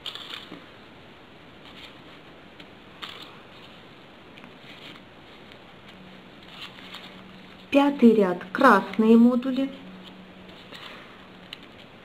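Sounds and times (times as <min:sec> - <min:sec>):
paper rustling and crinkling: 0:01.6 - 0:07.7, 0:10.0 - 0:12.0.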